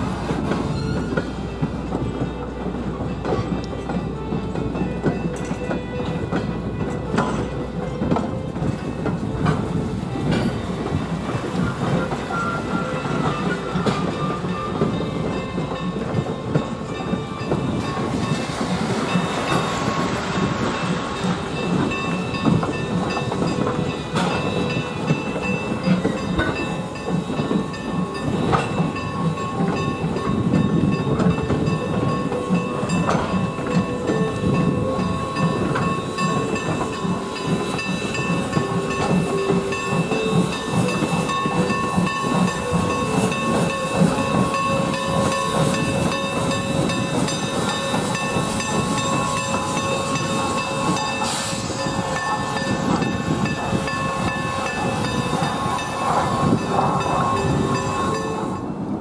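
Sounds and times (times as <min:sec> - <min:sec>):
train coaches rumbling: 0:00.0 - 0:59.0
wheels clicking on track: 0:00.0 - 0:59.0
steam hissing: 0:34.4 - 0:58.8.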